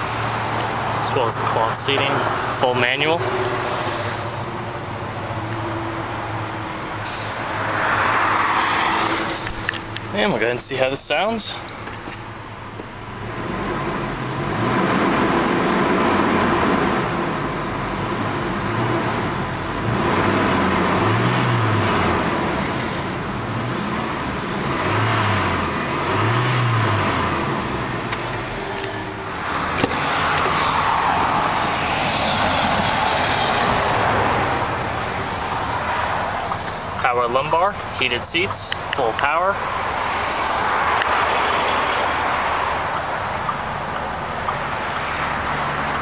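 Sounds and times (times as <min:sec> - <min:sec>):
truck engine revving: 0:13.1 - 0:37.6.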